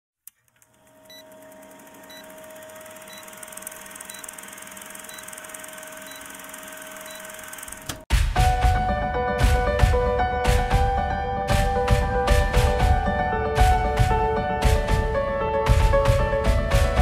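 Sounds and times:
projector whir: 0.5 - 8.0.

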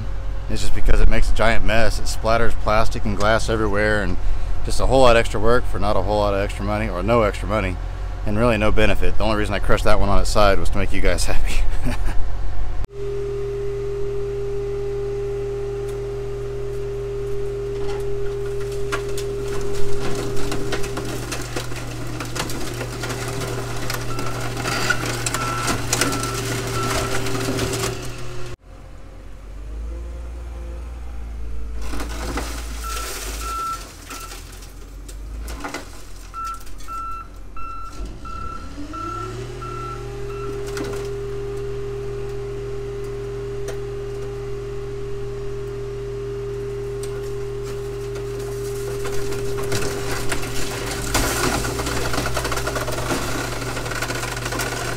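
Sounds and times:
low engine rumble: 0.0 - 54.9
hydraulic car crusher running: 12.9 - 54.9
metal and glass crunching: 17.9 - 28.2, 31.8 - 37.1, 47.1 - 54.9
reversing alarm beeping: 24.0 - 27.4, 32.8 - 34.4, 36.4 - 50.9.

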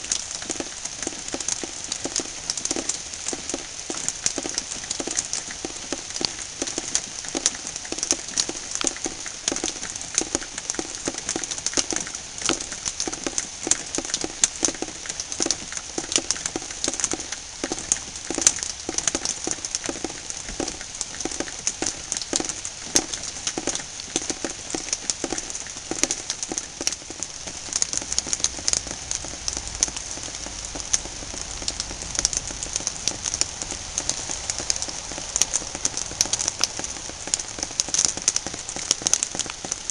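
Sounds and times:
heavy rain on hard surface: 0.0 - 39.9.

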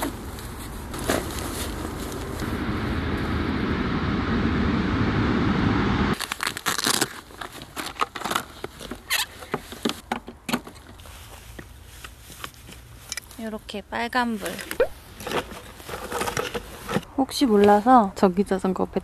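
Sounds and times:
steady rushing noise: 0.8 - 6.2.

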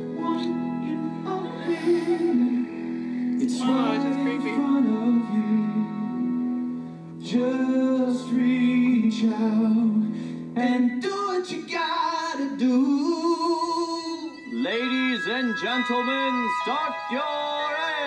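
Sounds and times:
instrumental backing music: 0.0 - 18.0
person singing show tune: 3.3 - 6.2, 10.6 - 18.0.

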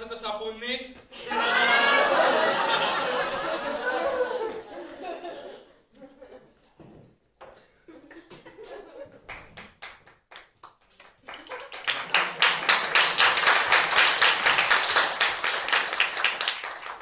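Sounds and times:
audience applause: 9.3 - 17.0.

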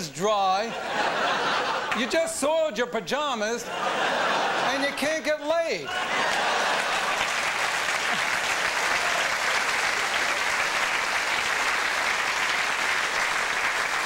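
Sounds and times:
audience applauding: 5.9 - 14.0.

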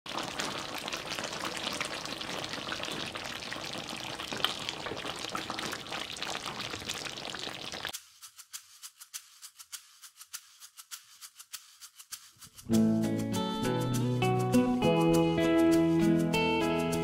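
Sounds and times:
stew bubbling and sizzling: 0.0 - 8.2
shaker rhythm: 6.7 - 17.0.

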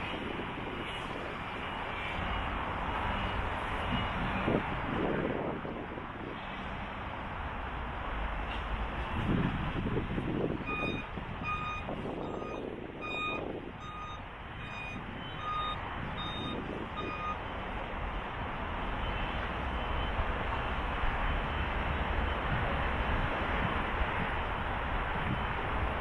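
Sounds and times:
construction site noise: 0.0 - 26.0
vehicle reversing alarm beeping: 10.6 - 17.4, 19.0 - 22.6.

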